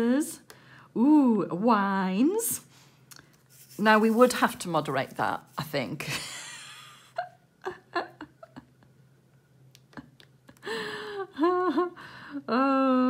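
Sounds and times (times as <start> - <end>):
woman humming: 11.3 - 13.0.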